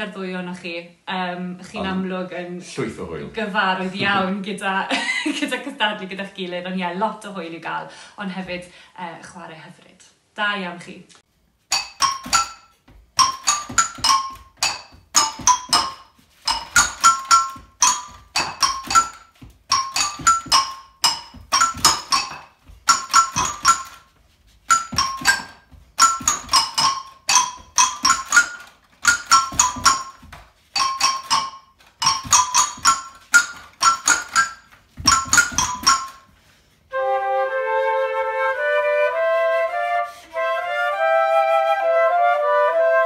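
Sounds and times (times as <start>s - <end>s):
foot-played keys tune: 11.7s - 36.3s.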